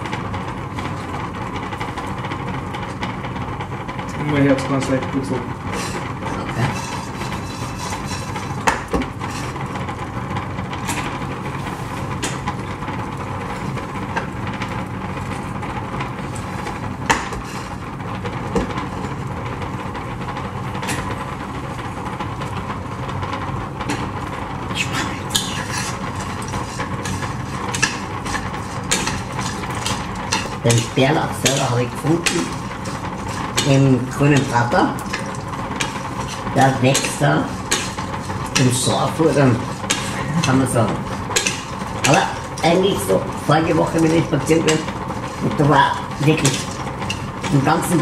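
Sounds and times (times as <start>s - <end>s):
utensil and nuts scraping pan: 5.7s - 9.8s, 17.1s - 17.8s, 24.7s - 48.0s.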